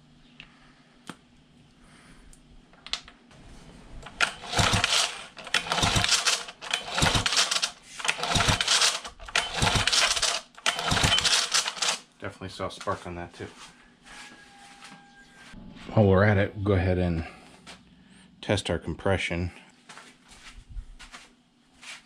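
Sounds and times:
recoil starter rope whir: 0:03.9 - 0:12.0
engine cranking clatter: 0:04.0 - 0:12.0.

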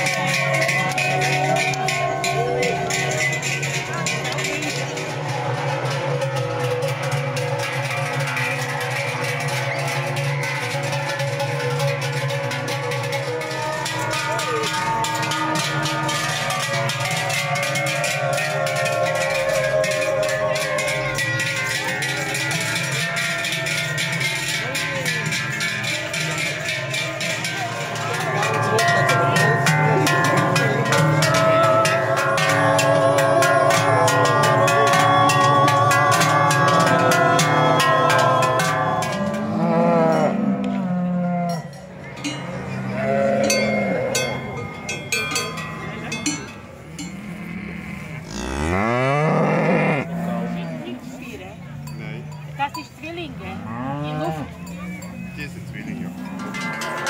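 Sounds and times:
cowbells clanging: 0:00.0 - 0:57.0
cows mooing: 0:28.0 - 0:44.5, 0:47.0 - 0:51.4, 0:53.3 - 0:55.0.

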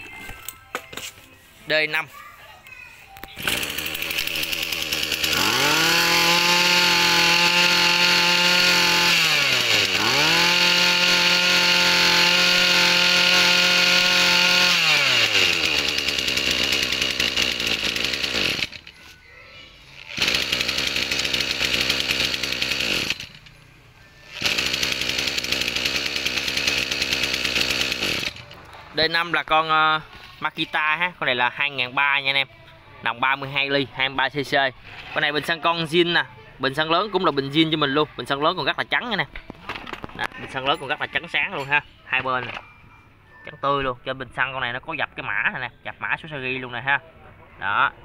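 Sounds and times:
brush cutter engine revving: 0:03.3 - 0:19.0, 0:20.0 - 0:29.5.

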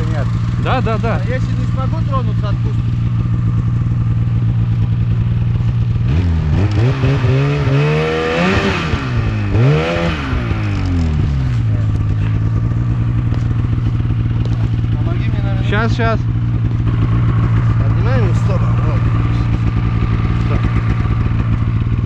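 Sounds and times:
snowmobile engine idling and revving: 0:00.0 - 0:22.0.

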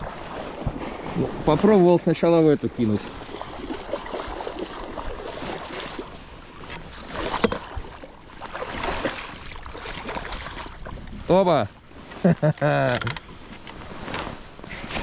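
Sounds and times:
wind on microphone: 0:00.0 - 0:01.8
water washing against boat hull: 0:00.0 - 0:15.0.

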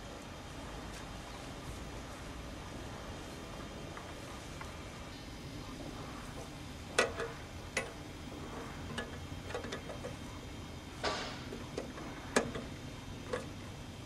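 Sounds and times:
low background noise: 0:00.0 - 0:14.0
metal clicks of hose coupling: 0:06.9 - 0:08.0, 0:08.9 - 0:10.2, 0:11.0 - 0:12.7, 0:13.3 - 0:13.5.

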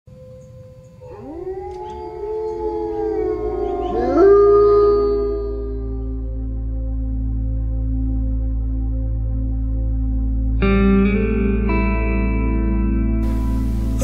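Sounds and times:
soft ambient music: 0:00.1 - 0:14.0
wolves howling: 0:00.2 - 0:06.5.

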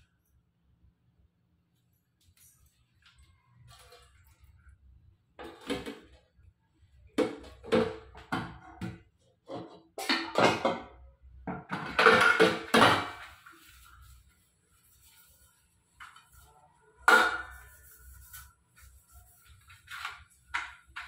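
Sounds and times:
steel dishes clanking in sink: 0:09.5 - 0:13.4, 0:17.0 - 0:17.7.

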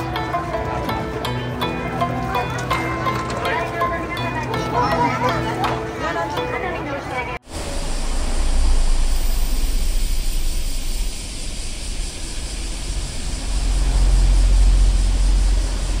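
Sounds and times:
low rumble with hiss: 0:07.5 - 0:16.0.

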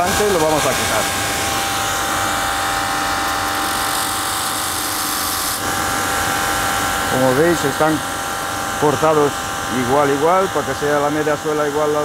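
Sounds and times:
machine motor hum: 0:00.0 - 0:12.0
sanding wheel grinding rubber: 0:03.1 - 0:05.7.

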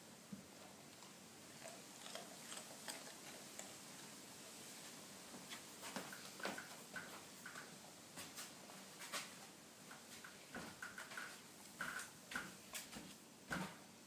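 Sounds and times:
dog crunching carrot: 0:00.8 - 0:04.2.

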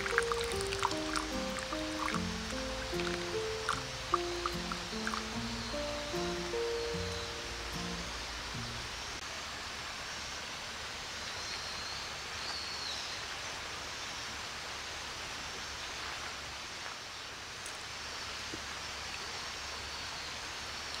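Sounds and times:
faint high chirps: 0:00.0 - 0:09.2
river flowing: 0:00.0 - 0:11.3.

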